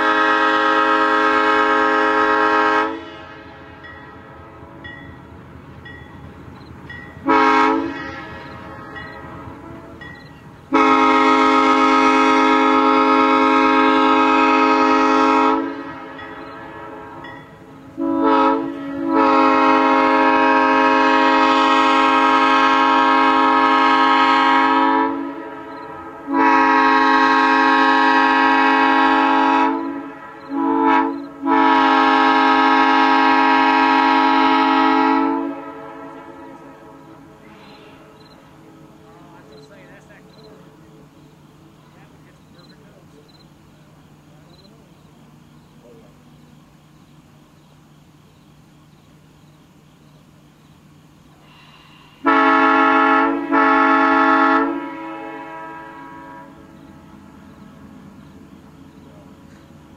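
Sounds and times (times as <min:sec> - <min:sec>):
locomotive air horn blasts: 0:00.0 - 0:04.9, 0:07.2 - 0:39.4, 0:51.4 - 0:59.7.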